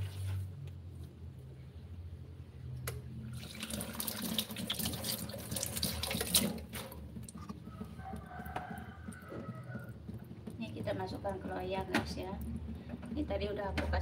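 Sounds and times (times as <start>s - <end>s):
tap water running into sink: 3.3s - 7.4s.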